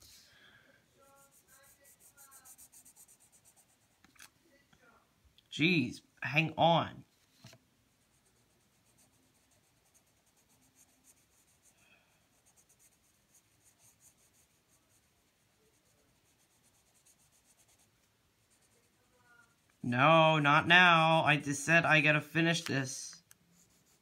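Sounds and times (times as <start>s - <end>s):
pencil scratching on paper: 1.0s - 4.0s, 8.0s - 19.1s, 23.5s - 24.0s.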